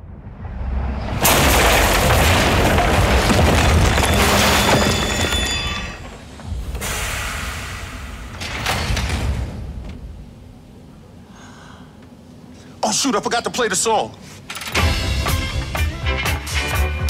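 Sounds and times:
train rumble: 0:00.0 - 0:11.2
wall crashing and debris: 0:01.2 - 0:06.2.

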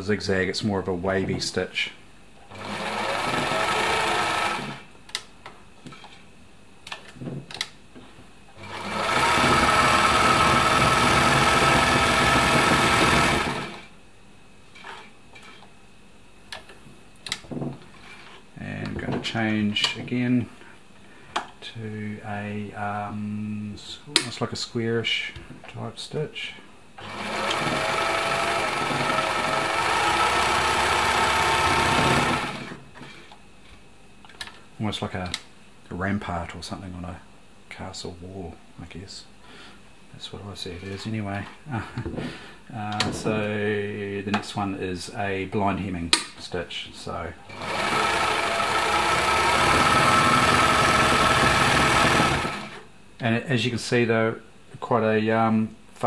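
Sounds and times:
sewing machine running fast: 0:02.5 - 0:04.8, 0:08.6 - 0:13.8, 0:27.0 - 0:32.8, 0:47.5 - 0:52.8.

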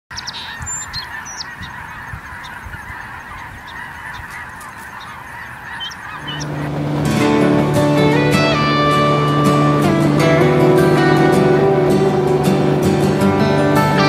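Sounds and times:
geese honking: 0:00.1 - 0:14.0
music: 0:06.4 - 0:14.0.

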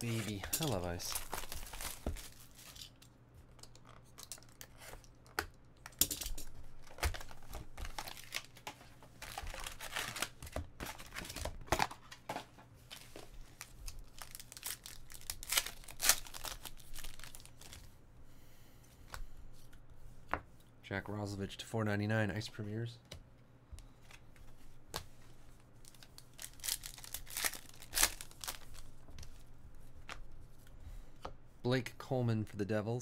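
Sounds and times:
cardboard and packs rustling: 0:00.0 - 0:02.9, 0:06.8 - 0:17.8, 0:25.8 - 0:28.8
plastic wrap crinkling and tearing: 0:00.0 - 0:03.0, 0:06.8 - 0:12.0, 0:12.9 - 0:17.8, 0:25.8 - 0:28.9.

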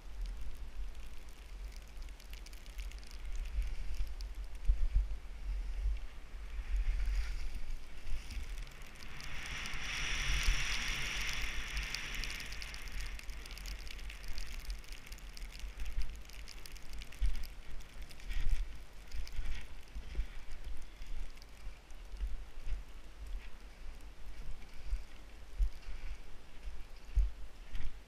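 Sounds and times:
wind on microphone: 0:00.0 - 0:28.0
skis sliding through powder snow: 0:03.2 - 0:21.8.

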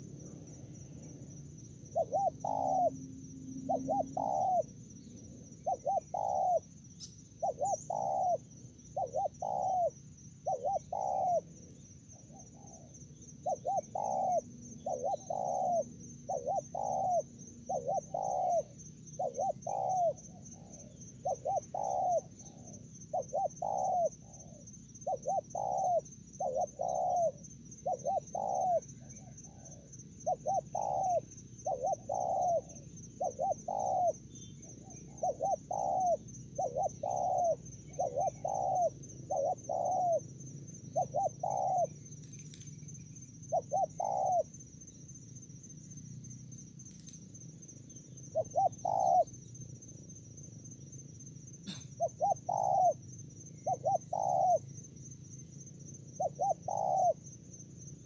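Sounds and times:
high-pitched insect trill: 0:00.0 - 0:58.0
dove cooing: 0:01.9 - 0:04.8, 0:05.5 - 0:06.8, 0:07.4 - 0:40.3, 0:40.9 - 0:42.4, 0:43.4 - 0:44.6, 0:48.2 - 0:49.4, 0:51.7 - 0:53.0, 0:53.6 - 0:54.8, 0:56.1 - 0:57.2.

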